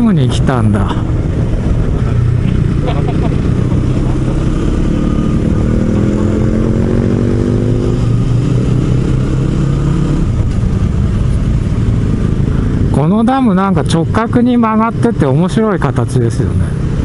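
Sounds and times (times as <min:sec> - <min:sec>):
wind rushing over microphone: 0:00.4 - 0:13.3
motorcycle engine running: 0:00.9 - 0:15.7.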